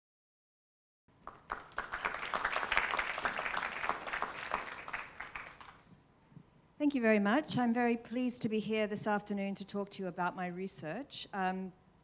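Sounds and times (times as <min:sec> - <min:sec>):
audience applauding: 0:01.2 - 0:05.8.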